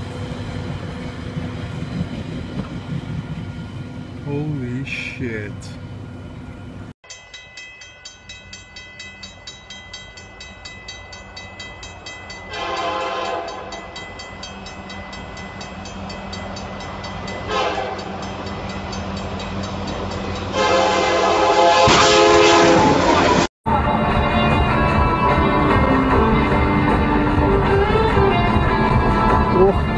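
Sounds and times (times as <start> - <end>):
diesel locomotive rumble: 0.0 - 7.0, 9.4 - 29.9
railroad crossing bell dinging: 5.6 - 21.2
locomotive air horn blasts: 12.5 - 13.7, 17.5 - 18.2, 20.5 - 23.5.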